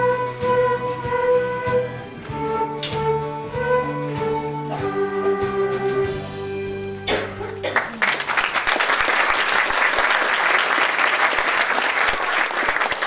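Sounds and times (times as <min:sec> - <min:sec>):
audience applause: 0:07.7 - 0:13.0.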